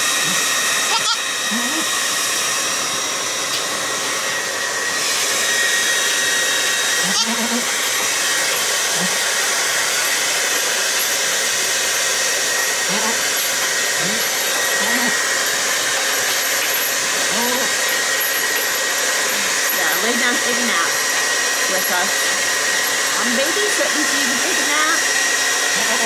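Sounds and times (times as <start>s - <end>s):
hair dryer blowing: 0.0s - 26.0s
low grunts: 1.5s - 1.9s.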